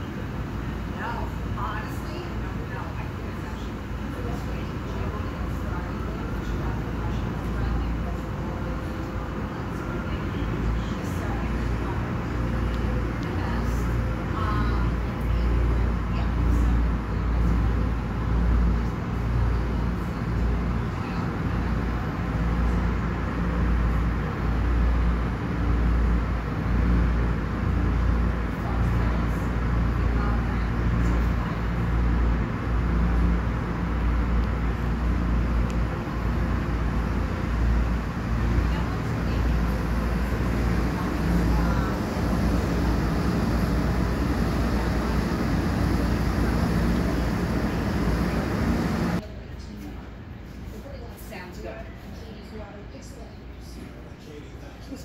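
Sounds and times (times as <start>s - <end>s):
spraying water and machinery: 0.0s - 49.2s
deep uneven rumble: 28.6s - 49.2s.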